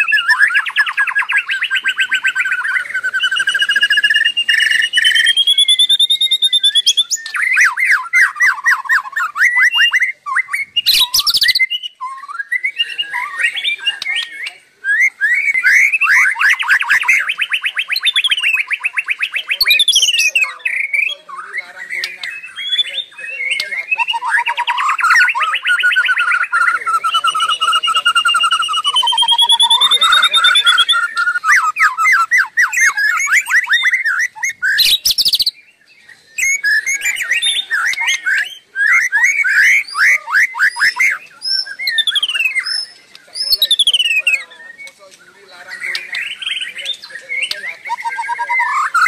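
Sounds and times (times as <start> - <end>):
bird singing whistles and trills: 0.0 - 49.0.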